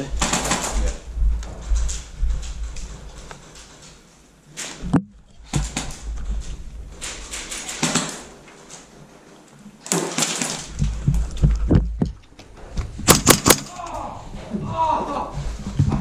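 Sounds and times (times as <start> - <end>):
gear rustling and knocking: 0.2 - 8.9, 9.9 - 13.9.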